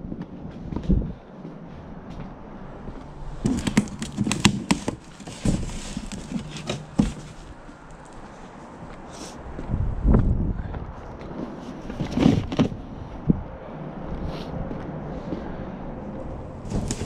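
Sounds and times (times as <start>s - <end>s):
rustling: 2.8s - 9.4s, 16.3s - 17.0s.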